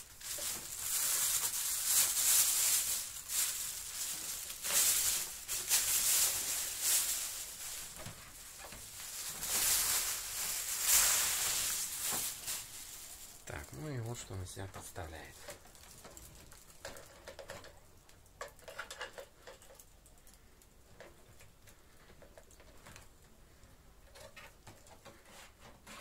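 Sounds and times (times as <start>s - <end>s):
plastic bag crinkling: 0.0s - 17.8s.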